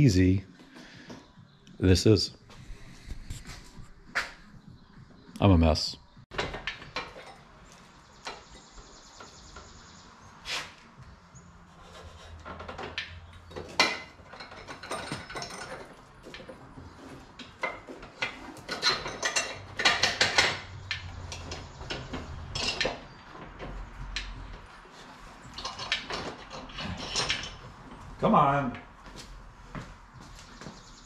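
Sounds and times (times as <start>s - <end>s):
wood and steel clanks: 6.3s - 9.9s, 11.6s - 29.9s.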